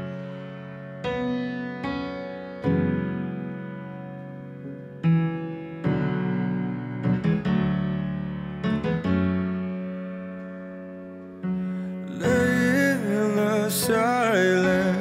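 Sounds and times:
slow solo piano music: 0.0s - 15.0s.

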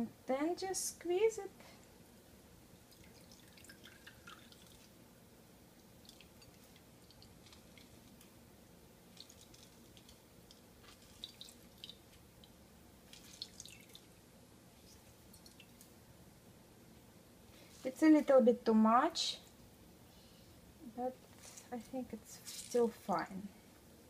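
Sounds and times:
liquid dripping: 2.8s - 5.0s, 5.8s - 8.4s, 9.0s - 16.0s
small wet clicks: 5.8s - 8.4s, 9.1s - 14.1s, 14.8s - 16.0s.

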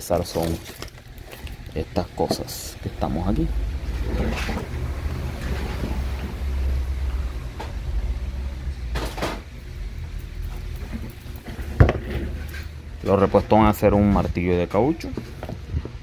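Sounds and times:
tools being handled: 0.0s - 2.6s
steady low rumble: 0.0s - 14.5s.

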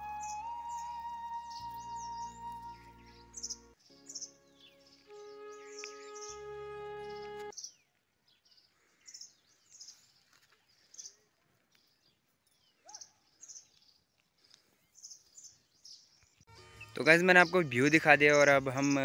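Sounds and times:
bird whistle rising and falling: 0.0s - 3.6s, 5.1s - 7.4s.

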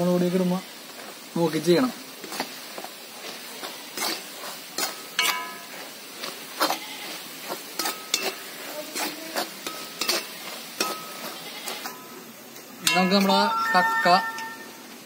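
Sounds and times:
clams sizzling in oil: 0.0s - 15.0s
ladle scraping metal pan: 3.6s - 12.1s.

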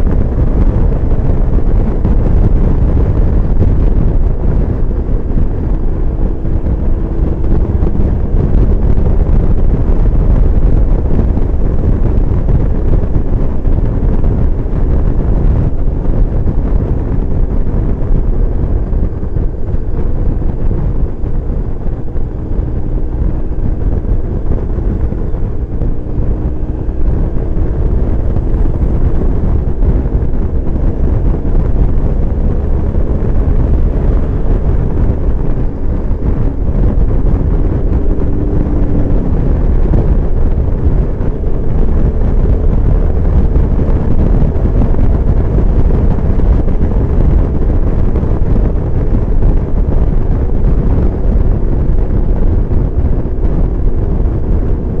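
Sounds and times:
heavy wind on microphone: 0.0s - 55.0s
motorcycle engine running: 0.0s - 55.0s.

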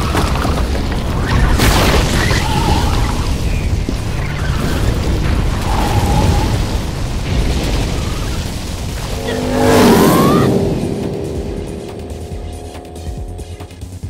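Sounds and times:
rocks crashing and smashing: 0.0s - 9.1s
motorcycle engine: 8.9s - 14.0s
music: 8.9s - 14.0s
rising whine: 8.9s - 14.0s.

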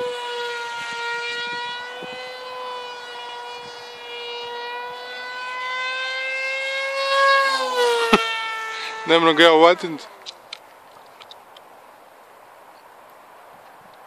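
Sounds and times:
model plane motor whine: 0.0s - 9.5s.

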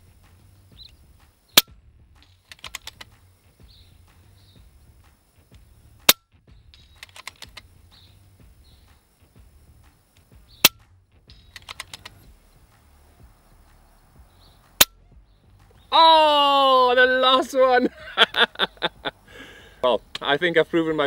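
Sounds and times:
silenced air rifle shots: 0.2s - 5.3s, 5.9s - 9.1s, 9.7s - 15.0s
light clicks: 11.4s - 12.3s.

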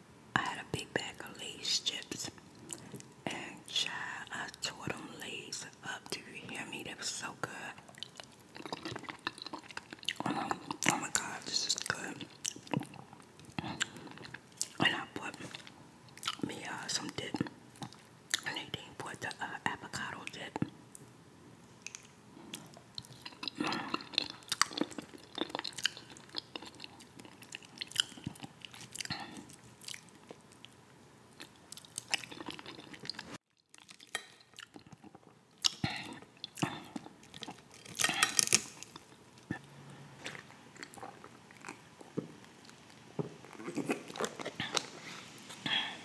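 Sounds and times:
man chewing food: 2.3s - 3.3s, 7.8s - 18.5s, 21.8s - 46.0s.

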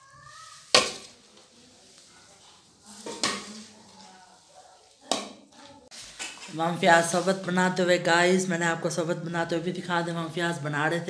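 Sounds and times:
soft stirring: 0.0s - 7.7s.

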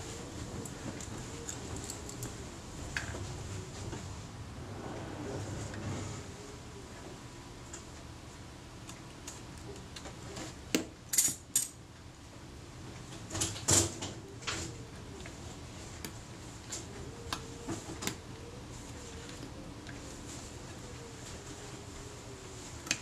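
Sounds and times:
small metal clicks and scrapes: 11.1s - 11.8s.

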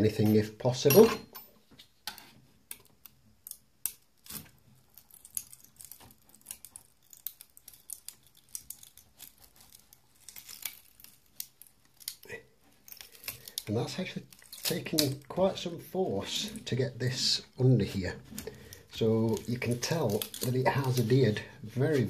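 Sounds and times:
plastic clicks and crackles: 18.3s - 21.2s.

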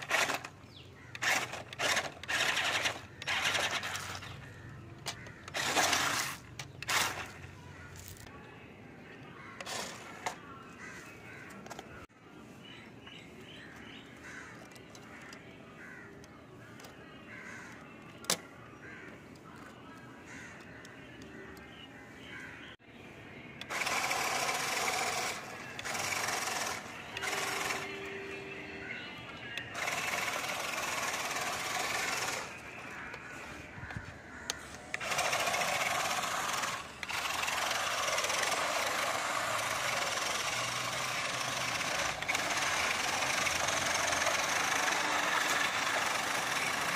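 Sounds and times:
toy truck motors whirring: 0.0s - 8.3s, 9.6s - 10.4s, 23.6s - 33.1s, 34.5s - 46.9s
wheels rolling on stone: 0.0s - 8.3s, 23.7s - 28.2s, 34.6s - 46.9s.

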